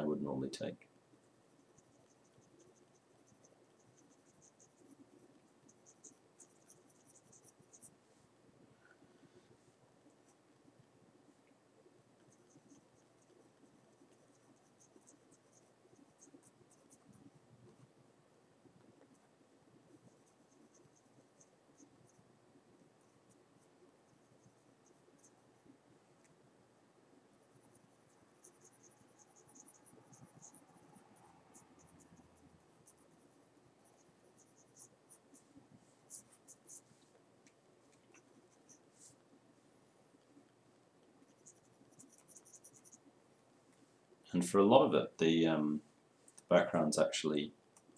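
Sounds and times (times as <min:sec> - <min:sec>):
pencil scratching on paper: 0:01.2 - 0:08.1, 0:12.2 - 0:17.9, 0:18.9 - 0:25.4, 0:27.4 - 0:37.1, 0:41.2 - 0:43.1.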